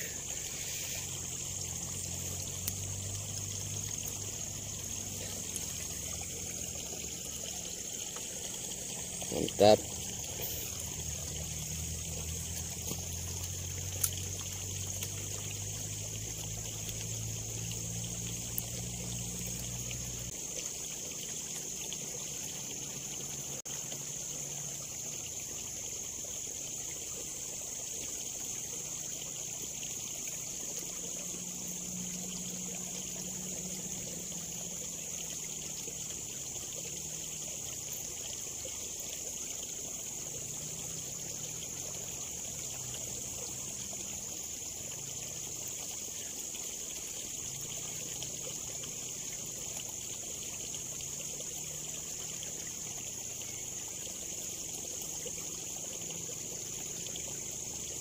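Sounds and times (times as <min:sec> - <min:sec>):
faint ticks: 0:00.0 - 0:05.8, 0:09.7 - 0:20.4
constant high hiss: 0:00.0 - 0:58.0
water trickling in a ditch: 0:00.0 - 0:58.0.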